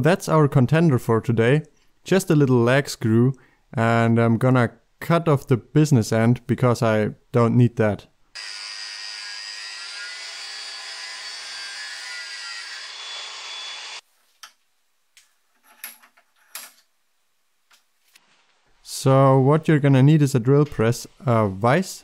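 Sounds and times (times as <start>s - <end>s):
angle grinder cutting steel: 8.4s - 14.0s.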